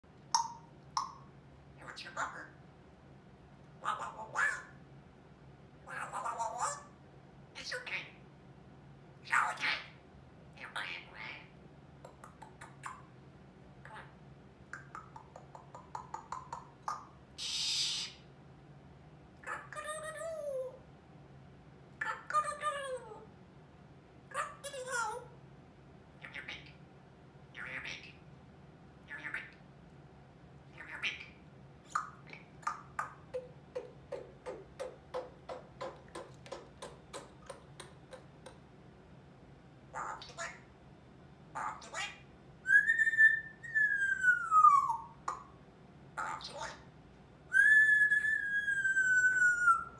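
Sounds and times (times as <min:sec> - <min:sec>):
parrot clicks and chirps: 0:00.3 - 0:01.2, 0:32.0 - 0:38.7.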